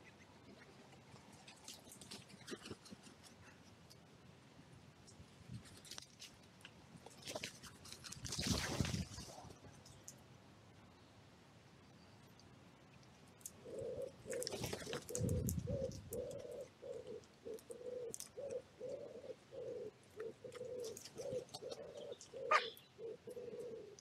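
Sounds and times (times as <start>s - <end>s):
pigeon cooing: 13.6s - 24.0s.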